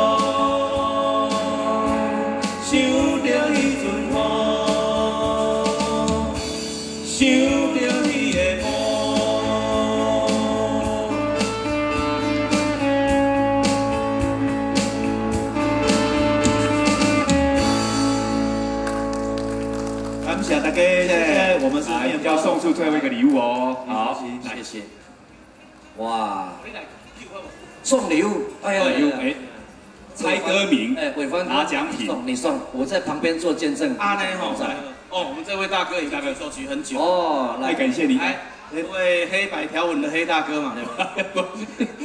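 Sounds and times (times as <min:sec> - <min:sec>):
men singing: 0:00.0 - 0:11.7
guitars: 0:00.0 - 0:22.0
electric bass: 0:08.4 - 0:21.7.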